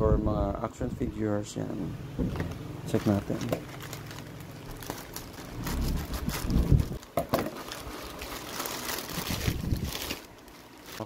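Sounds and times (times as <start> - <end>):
plastic crinkling and rustling: 2.3 - 11.0
scissors cutting plastic bag: 2.9 - 11.0.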